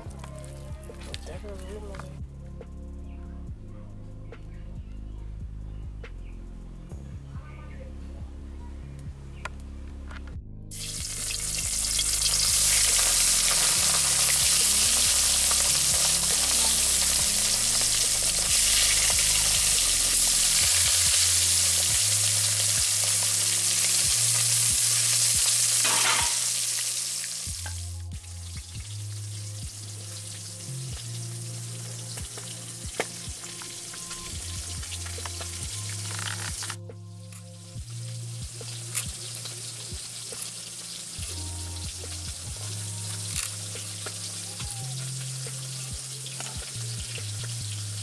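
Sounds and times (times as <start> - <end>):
low background music: 0.0 - 48.0
fish sizzling in hot oil: 10.7 - 36.8, 38.0 - 48.0.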